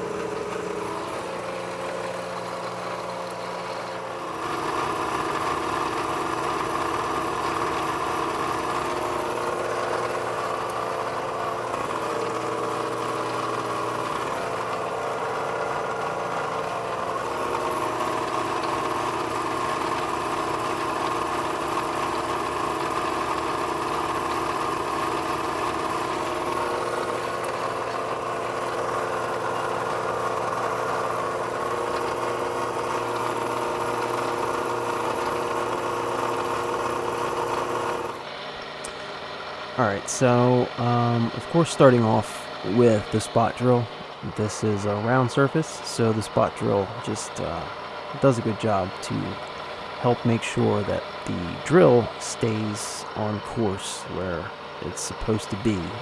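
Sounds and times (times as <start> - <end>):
milling machine spindle hum: 0.0 - 56.0.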